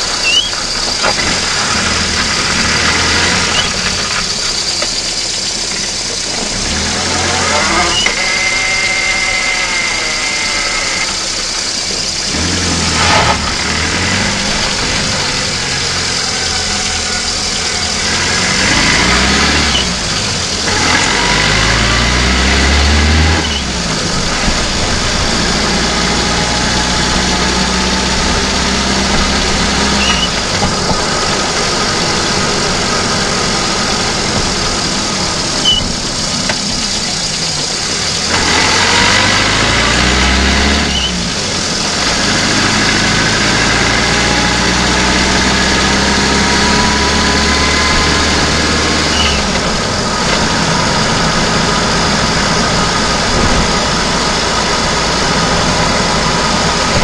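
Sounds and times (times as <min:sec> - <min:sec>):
car engine revving: 0:00.0 - 0:57.0
short engine knocks: 0:27.3 - 0:32.5.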